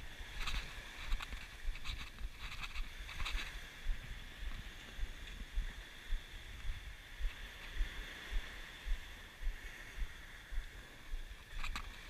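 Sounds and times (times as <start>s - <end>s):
wind: 0.0s - 12.0s
footsteps on pebble beach: 0.2s - 12.0s.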